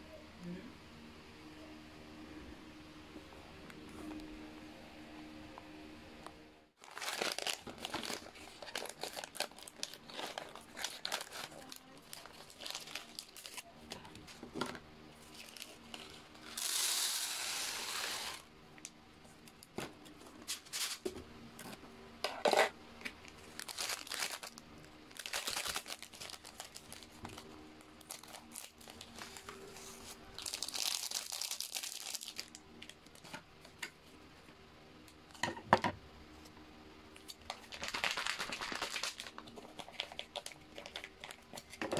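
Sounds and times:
food packets crinkling and tearing: 0:06.8 - 0:14.4, 0:15.2 - 0:18.4, 0:23.2 - 0:29.7, 0:30.4 - 0:33.3, 0:37.2 - 0:41.8.

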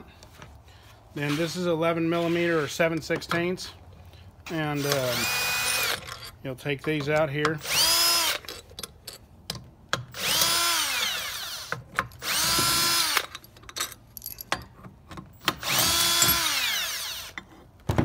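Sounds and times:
cordless drill motor whining: 0:04.8 - 0:06.0, 0:07.6 - 0:08.4, 0:10.2 - 0:13.3, 0:15.6 - 0:17.4.

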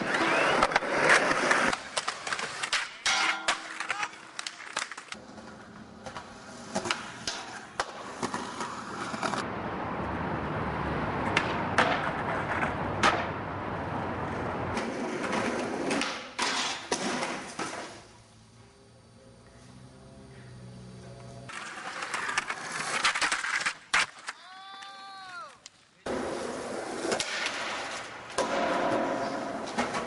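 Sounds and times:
skateboard clacks: 0:00.0 - 0:09.4, 0:11.2 - 0:13.4, 0:14.7 - 0:18.0
skateboard wheels rolling on concrete: 0:00.0 - 0:30.0.

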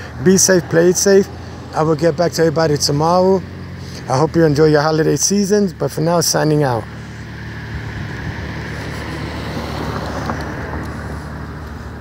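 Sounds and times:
car driving past: 0:06.8 - 0:12.0
wind rumbling on microphone: 0:07.7 - 0:11.6.

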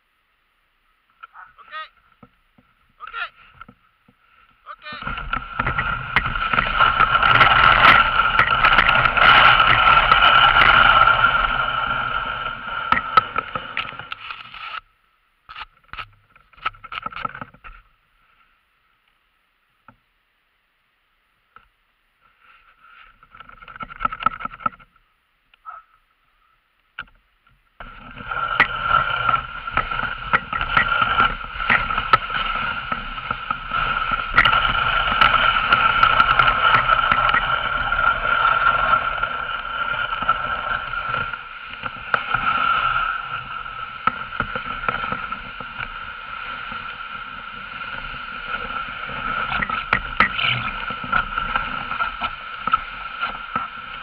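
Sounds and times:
sled runners scraping over snow: 0:01.3 - 0:14.8, 0:27.8 - 0:54.0.

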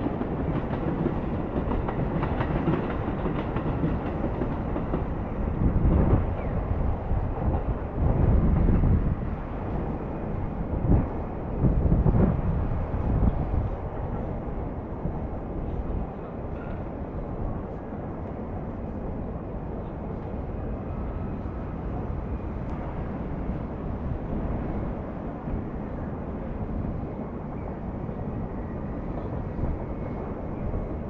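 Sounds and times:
city traffic rumble: 0:00.0 - 0:31.0
distant trains: 0:00.0 - 0:31.0.

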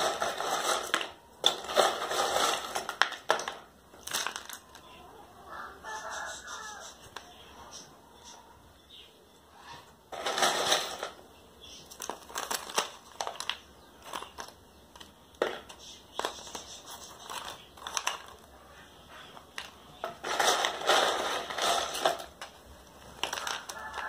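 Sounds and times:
plastic cup crinkling: 0:00.0 - 0:05.0, 0:10.1 - 0:24.0
potting medium crunching: 0:00.0 - 0:07.9, 0:09.6 - 0:24.0.

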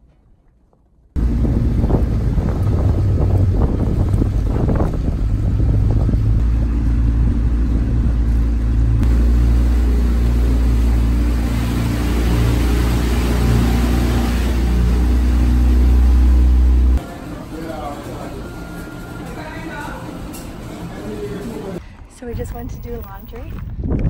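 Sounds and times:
wind: 0:00.0 - 0:24.0
small outboard motor running: 0:01.2 - 0:21.8
water noise: 0:01.2 - 0:21.8.

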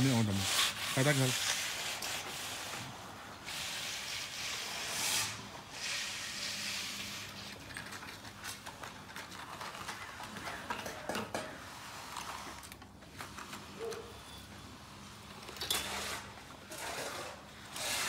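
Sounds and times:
concrete float rasping on wet slab: 0:00.0 - 0:08.1, 0:15.8 - 0:18.0
scattered clicks and scrapes: 0:04.9 - 0:14.1.

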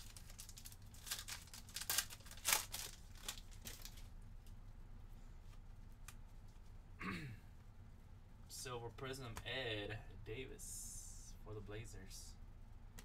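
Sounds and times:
foil wrapper crinkling: 0:00.0 - 0:04.1.

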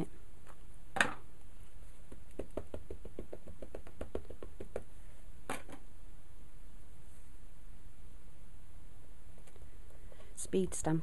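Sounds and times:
ink pad tapping on stamp: 0:02.1 - 0:04.9.

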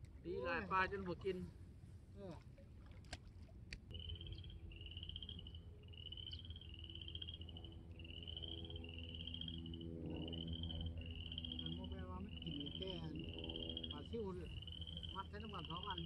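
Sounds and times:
steady low hum: 0:00.0 - 0:16.0
frogs trilling: 0:03.9 - 0:16.0.

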